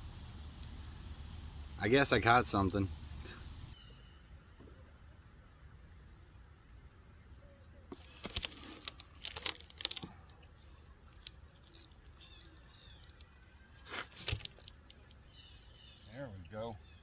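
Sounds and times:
fishing reel clicks and rattles: 11.2s - 13.5s.

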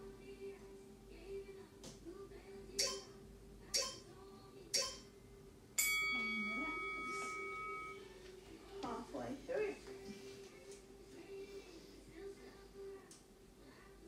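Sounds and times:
timer short pips: 2.8s - 3.1s, 3.8s - 4.0s, 4.8s - 5.1s
long ringing beep: 5.8s - 8.1s.

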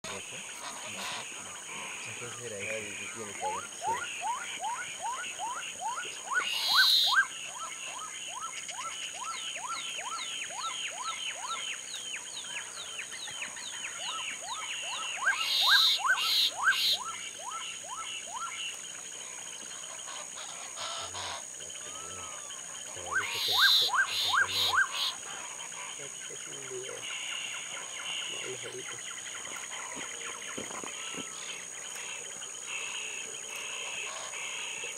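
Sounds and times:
harsh bird calls: 0.0s - 34.9s
birds whistling rising notes: 3.0s - 7.3s, 13.9s - 18.6s.

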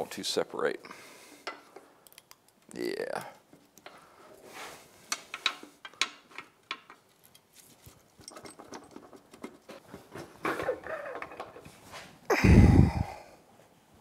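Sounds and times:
scraping and shuffling: 6.9s - 12.3s.

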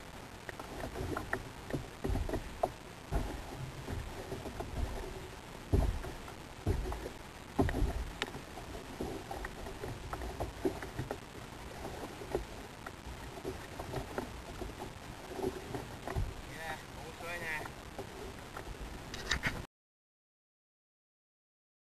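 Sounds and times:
water slapping against kayak hull: 0.0s - 19.6s
dull thump: 0.8s - 11.2s, 13.4s - 16.5s.

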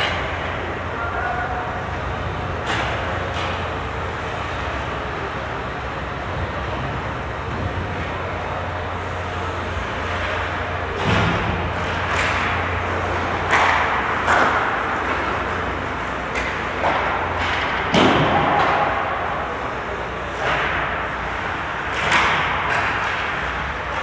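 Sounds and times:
hockey sticks and puck cracking: 0.0s - 1.2s, 2.5s - 3.8s, 10.0s - 24.0s.

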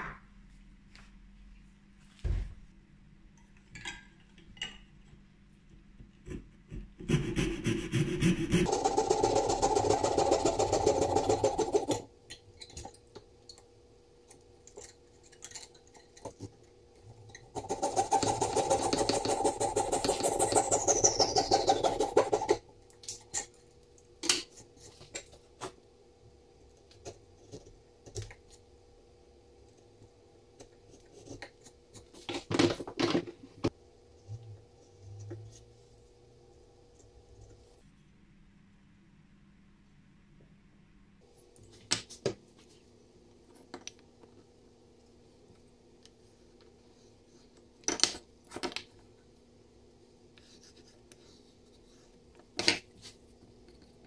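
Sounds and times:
fret saw cutting wood: 7.1s - 12.0s.

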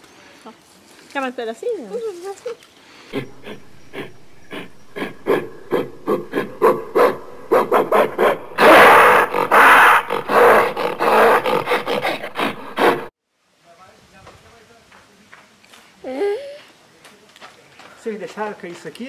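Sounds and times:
gorilla roar: 3.1s - 13.1s
short rhythmic pulses: 3.1s - 13.1s.

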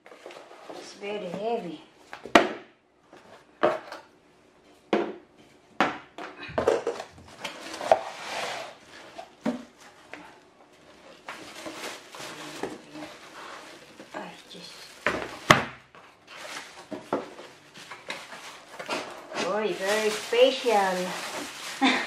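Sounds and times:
plastic bag crinkling: 10.7s - 22.0s.

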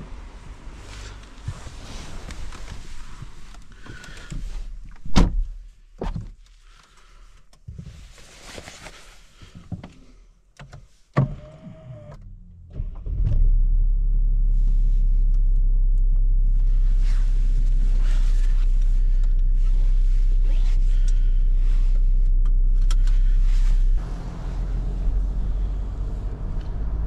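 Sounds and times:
car engine starting and idling: 0.0s - 5.0s, 11.2s - 27.0s
knocks and rustling in car seat: 1.4s - 6.4s
car door shutting: 1.5s - 6.2s, 11.2s - 13.5s.

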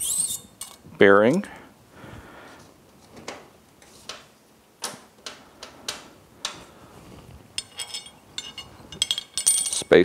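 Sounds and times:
ringing metallic clinks: 7.6s - 10.0s.

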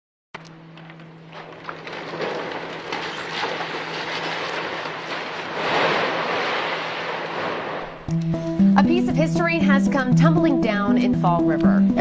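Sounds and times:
rubble crashing and crumbling: 0.4s - 8.9s.

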